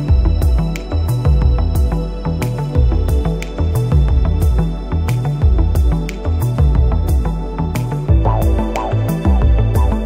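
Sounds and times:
music with steady beat and bass: 0.0s - 10.0s.

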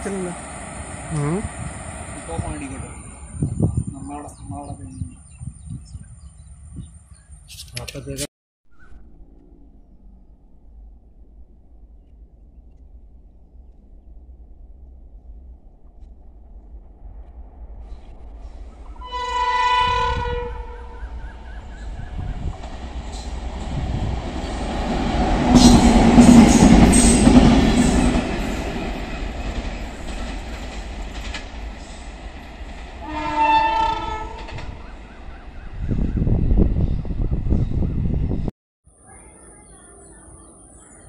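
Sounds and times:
locomotive rumble passing: 0.0s - 6.6s, 12.9s - 38.5s
loud low rumble: 8.8s - 19.0s
locomotive horn blast: 19.0s - 21.2s, 33.0s - 34.7s
wheels clattering over rail joints: 25.5s - 33.0s.

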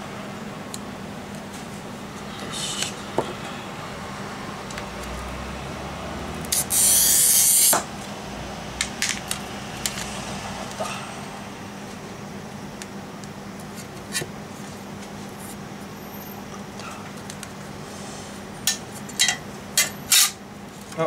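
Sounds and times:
glass cutter scoring glass: 6.5s - 7.9s, 19.8s - 20.4s.

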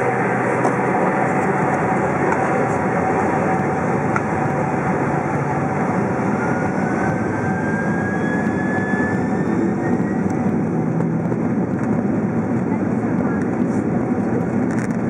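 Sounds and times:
faint rising whine: 0.0s - 11.4s
jet engines humming in cabin: 0.0s - 15.0s.

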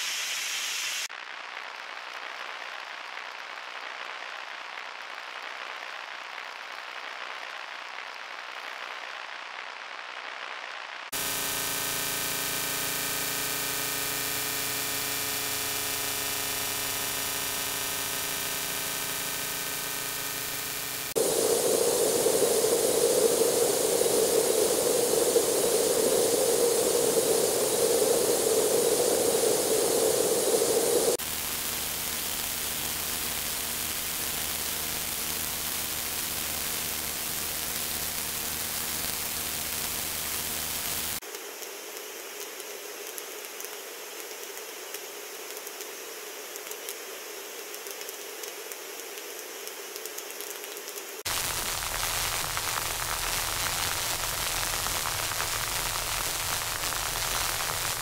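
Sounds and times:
white noise hiss: 0.0s - 9.8s, 11.1s - 58.0s
faint multi-tone hum: 11.2s - 50.3s
mid-pitched rushing noise: 18.1s - 31.2s.

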